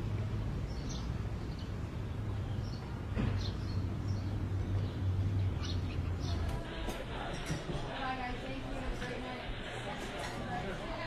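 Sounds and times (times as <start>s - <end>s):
steady low rumble: 3.9s - 11.0s.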